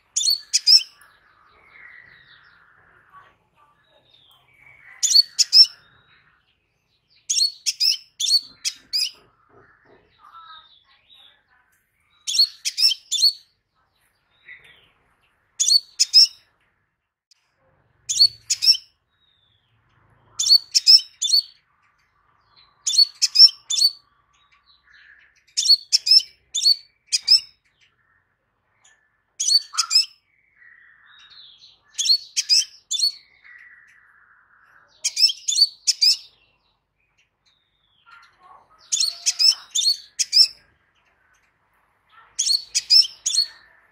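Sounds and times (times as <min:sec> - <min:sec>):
faint thin bird twitters: 0:38.0 - 0:43.9.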